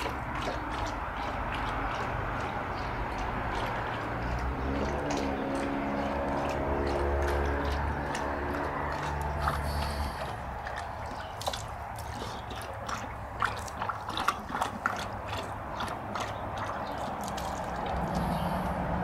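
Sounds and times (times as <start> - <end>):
dog lapping water: 0.0 - 19.0.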